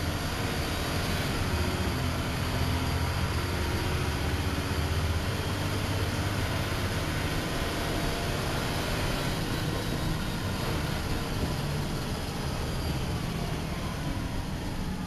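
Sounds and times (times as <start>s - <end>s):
bus diesel engine running: 0.0s - 15.0s
road noise: 0.0s - 15.0s.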